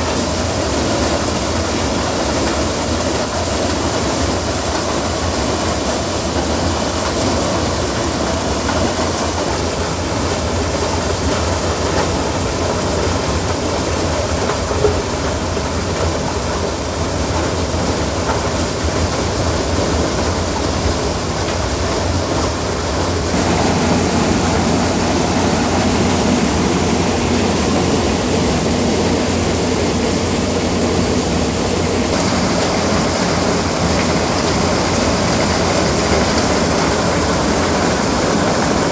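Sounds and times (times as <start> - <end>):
tractor engine: 0.0 - 38.9
threshing machine din: 23.3 - 36.4.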